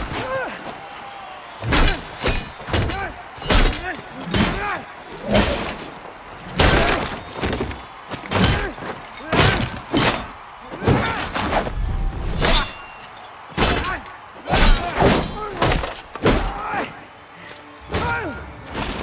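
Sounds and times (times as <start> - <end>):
fighters grunting and shouting: 0.0 - 11.8, 12.4 - 17.2, 17.9 - 18.6
swords hitting shields and armour: 1.6 - 5.8, 6.6 - 11.7, 12.3 - 16.7.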